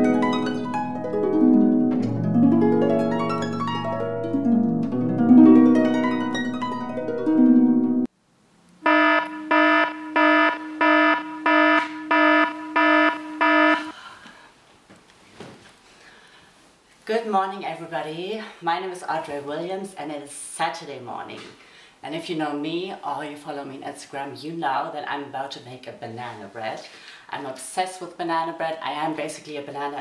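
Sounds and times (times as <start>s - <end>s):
harp arpeggios: 0.0s - 8.1s
electronic alarm beeping: 8.8s - 13.9s.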